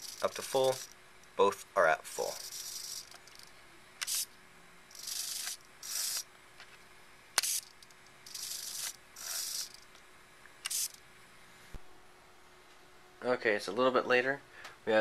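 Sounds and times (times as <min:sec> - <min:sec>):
servos whirring: 0:00.0 - 0:01.4, 0:02.1 - 0:06.3, 0:07.3 - 0:10.0, 0:10.6 - 0:11.0.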